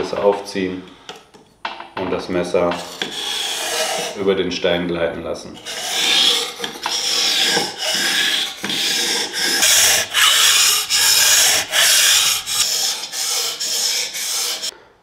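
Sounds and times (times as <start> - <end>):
knife scraping on whetstone: 2.7 - 4.2, 5.6 - 14.7.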